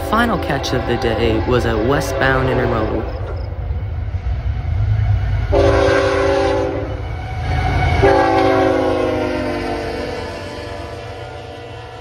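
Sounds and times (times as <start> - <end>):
low rumble of train: 0.0 - 12.0
locomotive air horn blasts: 5.5 - 7.0, 8.0 - 10.2.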